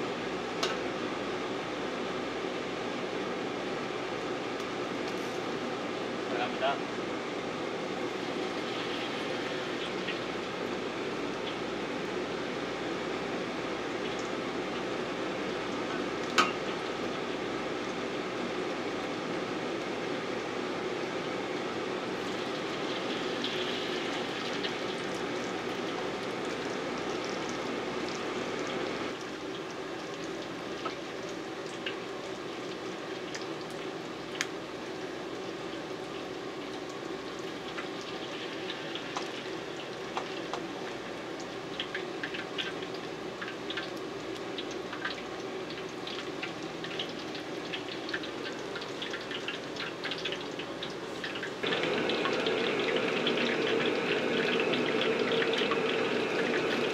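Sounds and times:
food deep-frying in hot oil: 0.0s - 56.9s
oil popping and crackling: 22.2s - 56.9s.

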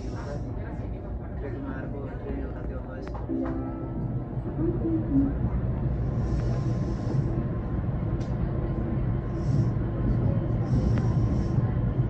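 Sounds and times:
train rumbling on rails: 0.0s - 12.0s
hiss: 6.2s - 7.3s, 10.6s - 11.6s.

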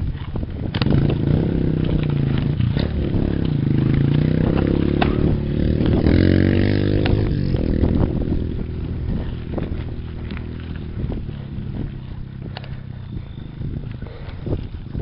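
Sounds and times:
bike rattling on dirt trail: 0.0s - 15.0s
motorcycle engine revving: 0.0s - 15.0s.

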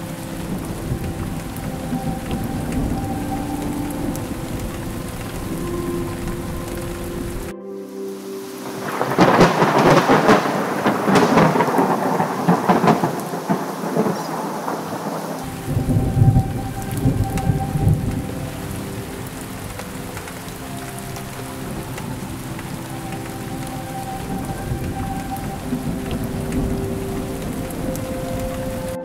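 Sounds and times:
close thunderclap crackling: 0.0s - 7.5s, 8.7s - 29.0s
steady rain: 0.0s - 29.0s
deep thunder rumble: 8.8s - 29.0s.

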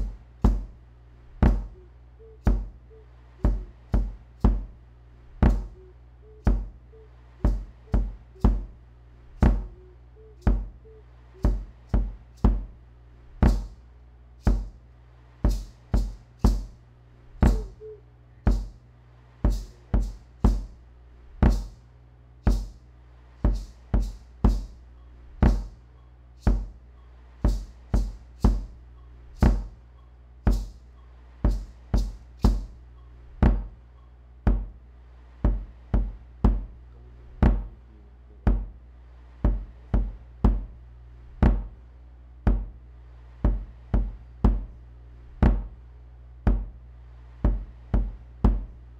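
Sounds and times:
electronic percussion beat: 0.0s - 13.8s, 14.4s - 14.8s, 15.4s - 18.8s, 19.4s - 21.8s, 22.5s - 22.8s, 23.4s - 34.7s, 35.5s - 37.8s, 41.4s - 41.8s, 45.4s - 45.8s
steady low drone: 0.0s - 48.9s
faint wavering higher notes: 1.5s - 4.1s, 5.4s - 8.8s, 9.4s - 11.9s, 17.4s - 18.5s.

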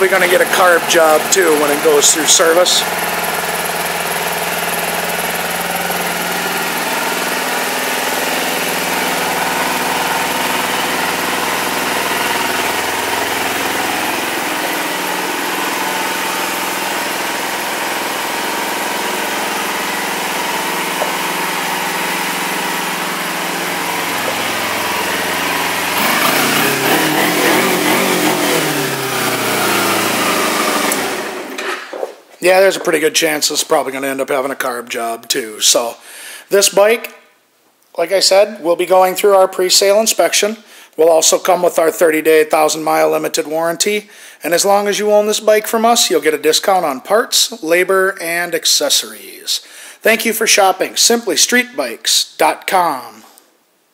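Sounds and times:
motorcycle engine idling and revving: 0.0s - 31.6s.

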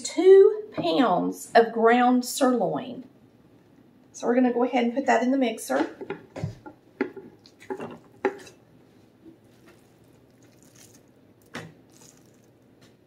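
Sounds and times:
ground meat plopping into bowl: 9.6s - 12.9s.

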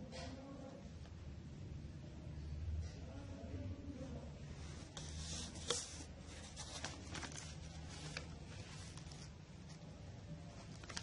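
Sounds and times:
handling rustles and scuffs: 4.6s - 9.8s.

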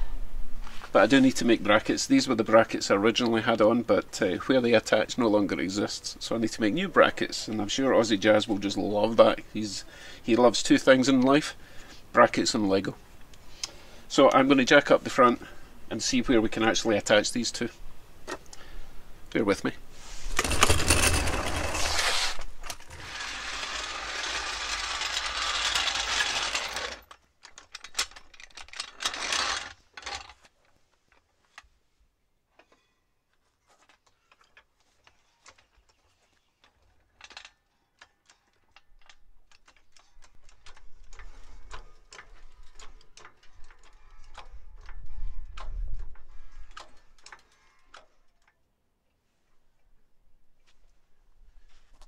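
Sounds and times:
loud scraping rush: 20.0s - 27.0s
car jack clicking and ratcheting: 22.7s - 30.4s, 37.1s - 48.5s.

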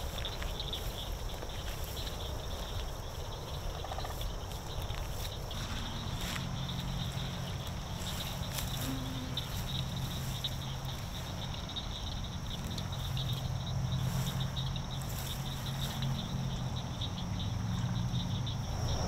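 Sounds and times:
insects and frogs trilling: 0.0s - 19.0s
low steady drone: 5.5s - 19.0s.

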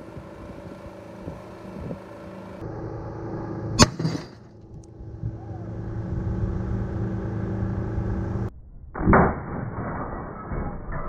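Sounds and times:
microwave oven humming: 0.0s - 8.5s
loud sharp bang: 3.8s - 4.5s.

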